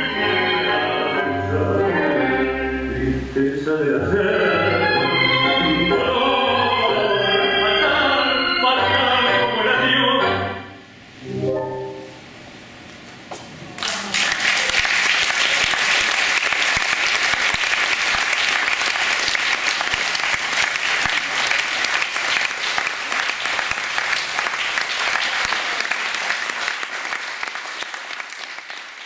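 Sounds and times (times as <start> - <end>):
audience applauding: 13.8 - 29.0.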